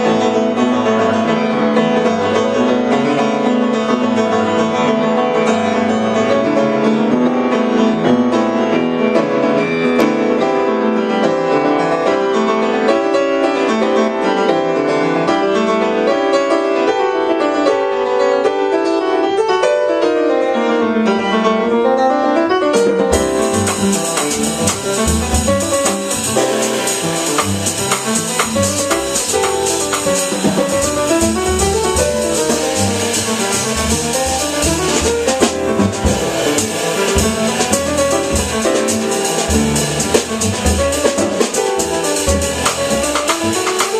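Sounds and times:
jazz piano: 0:00.0 - 0:43.9
drum kit with cymbals: 0:22.8 - 0:43.9
bass line: 0:23.0 - 0:43.9.

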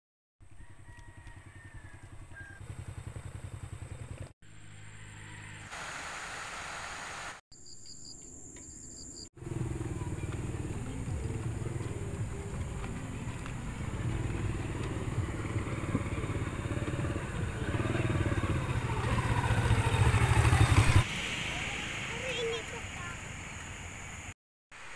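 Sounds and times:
small motorcycle engine running: 0:00.6 - 0:05.6, 0:09.4 - 0:21.1.

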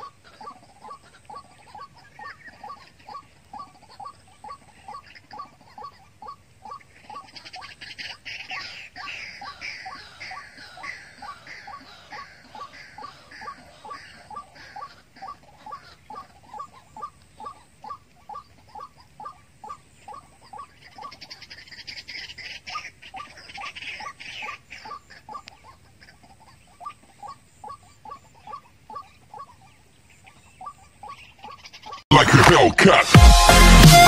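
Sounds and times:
waterhen calling: 0:00.0 - 0:32.1
high scratchy noise: 0:32.1 - 0:34.0.

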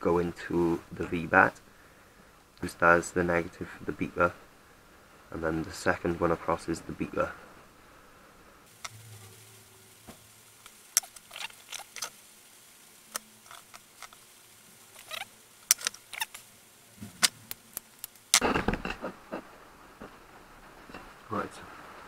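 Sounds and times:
small clicks and scrapes of handling wires: 0:10.6 - 0:12.2, 0:13.0 - 0:18.5.

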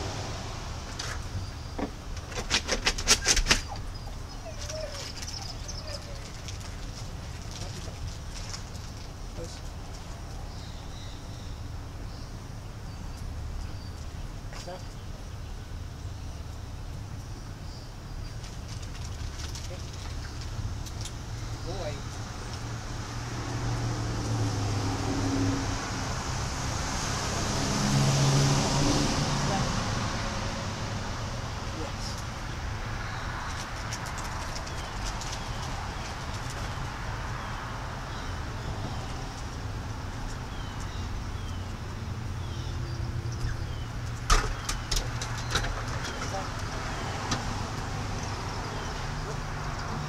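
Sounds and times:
passing vehicle engine hum: 0:00.0 - 0:02.2, 0:18.6 - 0:50.0
distant road traffic rumble: 0:00.0 - 0:50.0
outdoor background noise: 0:00.0 - 0:50.0.

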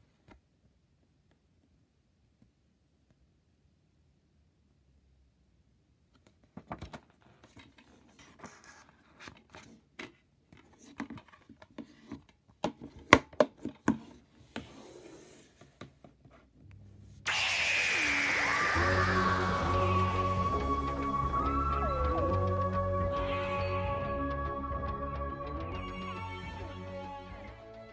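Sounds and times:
music with falling sweep: 0:17.3 - 0:27.9.

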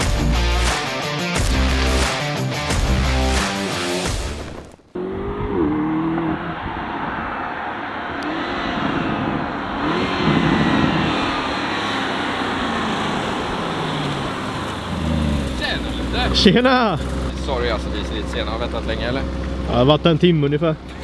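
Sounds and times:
music: 0:00.0 - 0:04.7
car engine revving: 0:00.0 - 0:21.0.

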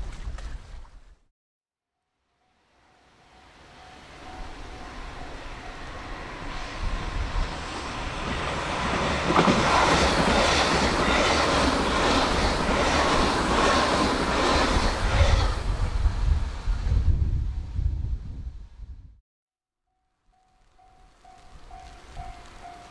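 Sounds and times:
electric train passing: 0:02.3 - 0:17.8, 0:20.1 - 0:22.9.

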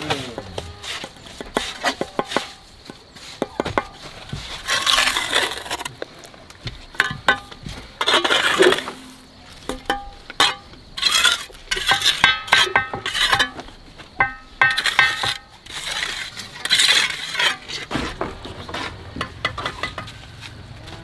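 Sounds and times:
trowel scraping mortar: 0:00.0 - 0:06.1, 0:07.0 - 0:09.3, 0:09.9 - 0:13.6, 0:14.2 - 0:20.6
trowel clinking on bricks: 0:06.9 - 0:17.9, 0:18.8 - 0:20.2.

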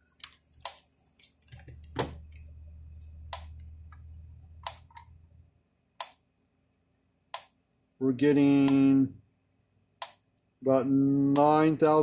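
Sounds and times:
low hum: 0:01.8 - 0:05.6.

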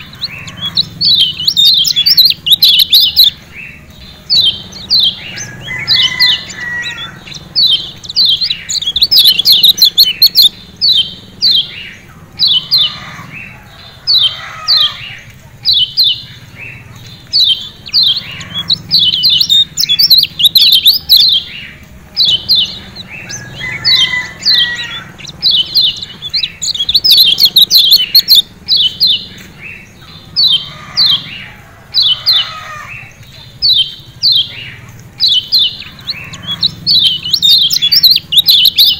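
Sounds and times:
bird giving sharp high calls: 0:00.0 - 0:38.9.

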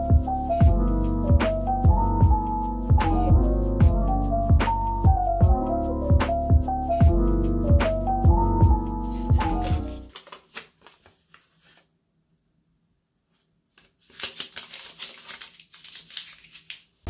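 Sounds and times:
background music: 0:00.0 - 0:10.1
paper rustling: 0:09.0 - 0:11.9, 0:13.3 - 0:17.0
paper crumpling: 0:09.1 - 0:11.9, 0:13.7 - 0:17.0.

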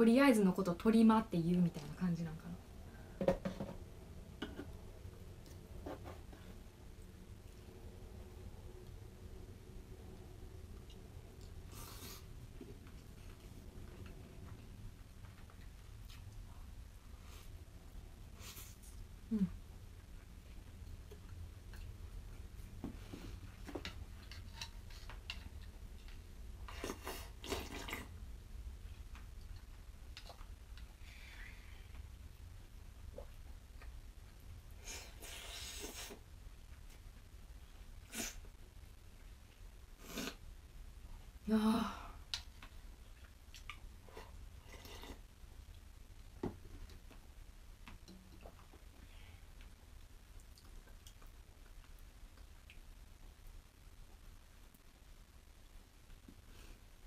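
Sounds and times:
low steady hum: 0:00.0 - 0:57.0
faint chewing: 0:10.6 - 0:28.2, 0:28.8 - 0:31.0, 0:42.3 - 0:54.8
slurping soup: 0:26.7 - 0:28.1.

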